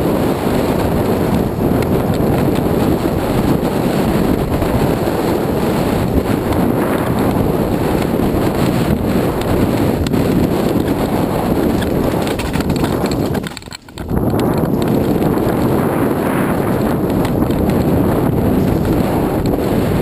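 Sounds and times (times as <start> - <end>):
bike tyres rumbling over gravel: 0.0 - 20.0
wind buffeting microphone: 0.0 - 20.0
bike knocks and rattles: 6.0 - 19.6.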